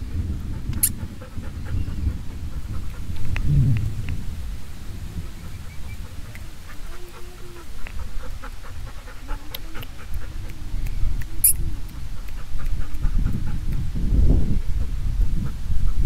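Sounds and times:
low rumble: 0.0 - 15.9
small ticks and clicks: 0.7 - 1.0, 2.9 - 4.2, 9.4 - 13.1
dog whining: 5.8 - 11.8.

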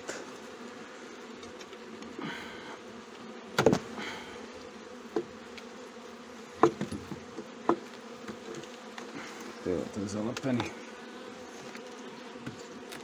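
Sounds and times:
bees buzzing: 0.0 - 13.0
sharp knocks: 6.6 - 7.8.

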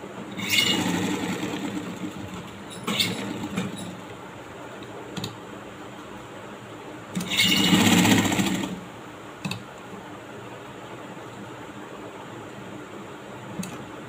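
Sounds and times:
sewing machine running: 0.4 - 3.9, 7.2 - 8.8.

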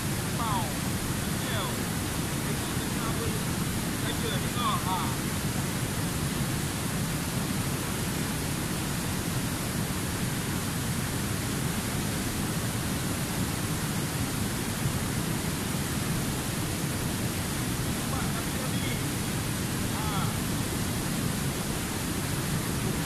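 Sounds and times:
river rapids rushing over rocks: 0.0 - 23.0.

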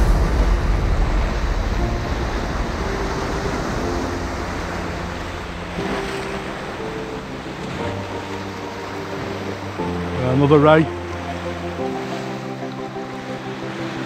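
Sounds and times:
wind on microphone: 0.0 - 10.2
soft background music: 0.0 - 14.0
surf breaking over rocks: 0.0 - 14.0.

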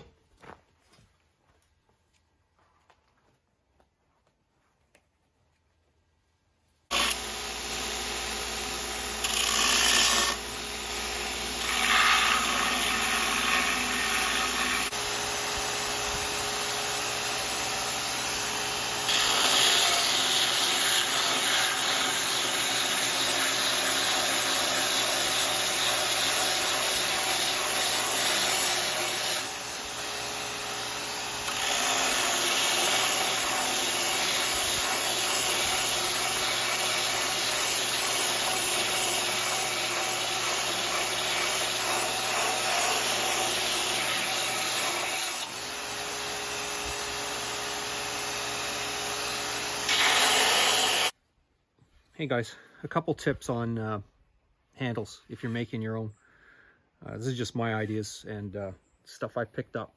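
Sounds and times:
belt grinder sanding wood: 6.9 - 51.2.

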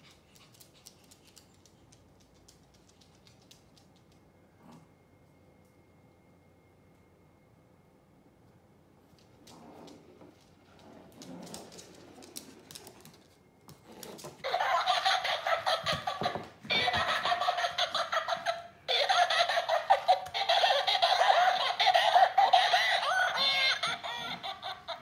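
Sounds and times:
toy playing recorded laughter: 14.4 - 25.0.

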